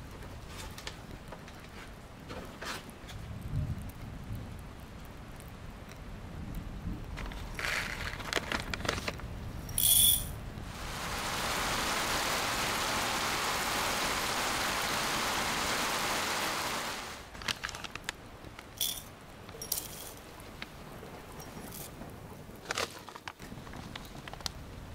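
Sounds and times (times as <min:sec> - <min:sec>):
rain on a lake: 0:00.0 - 0:24.9
plastic bag rustling: 0:07.2 - 0:09.2, 0:17.3 - 0:19.0, 0:22.6 - 0:24.5.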